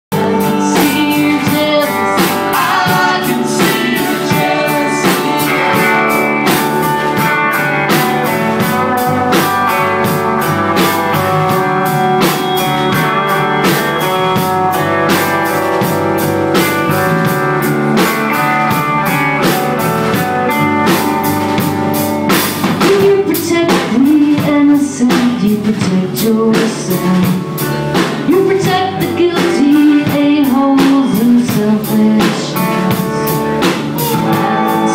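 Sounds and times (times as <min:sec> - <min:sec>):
person singing: 0:00.1 - 0:07.0, 0:22.8 - 0:27.4, 0:28.3 - 0:34.9
live rock band playing: 0:00.1 - 0:34.9.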